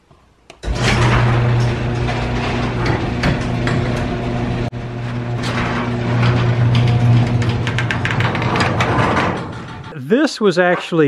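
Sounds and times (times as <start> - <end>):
garage door motor hum: 0.6 - 10.0.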